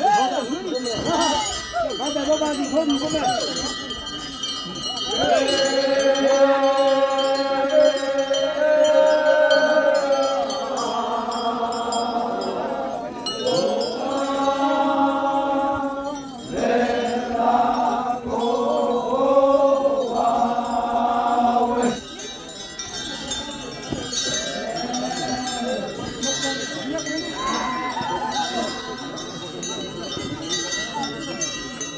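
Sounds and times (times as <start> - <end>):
group chanting in unison: 5.0 - 22.0, 24.3 - 26.1.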